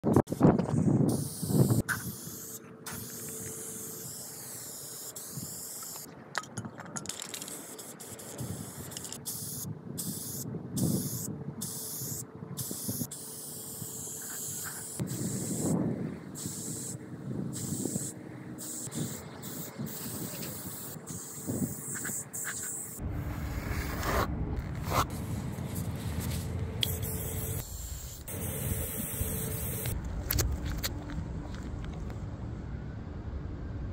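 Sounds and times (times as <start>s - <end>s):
spray paint can hissing: 1.1s - 6.1s, 7.0s - 15.8s, 16.4s - 23.0s, 24.9s - 30.4s
steady low rumble: 22.9s - 33.9s
low rumbling: 23.0s - 27.6s.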